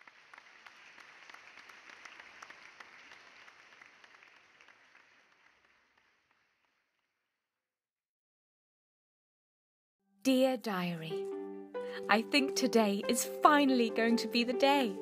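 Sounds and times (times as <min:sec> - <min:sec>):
faint applause: 0:00.0 - 0:07.1.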